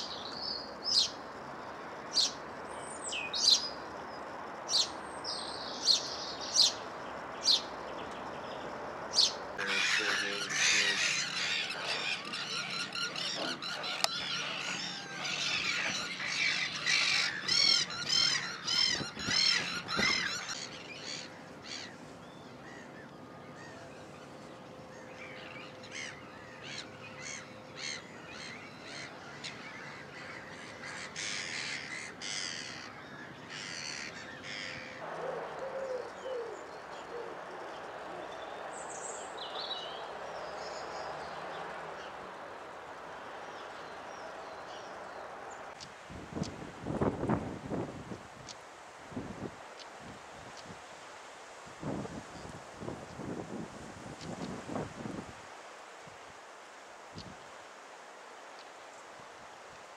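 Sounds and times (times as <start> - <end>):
wild birds calling: 4.7 - 48.6.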